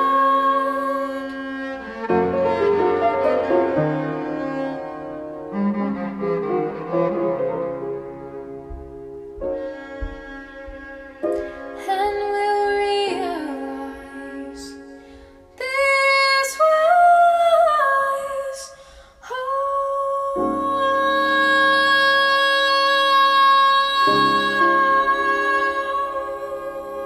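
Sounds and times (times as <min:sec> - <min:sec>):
woman singing: 0:00.0 - 0:01.6, 0:11.8 - 0:15.0, 0:15.6 - 0:27.0
cello: 0:00.0 - 0:27.0
piano: 0:00.0 - 0:27.0.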